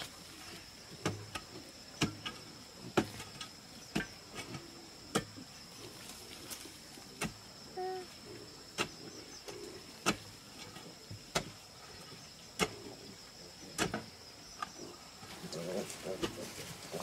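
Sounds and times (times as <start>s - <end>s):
hand tool chopping into clay soil: 1.0s - 5.4s, 7.2s - 7.4s, 8.7s - 9.1s, 10.0s - 10.4s, 11.2s - 11.6s, 12.6s - 12.8s, 13.7s - 14.1s.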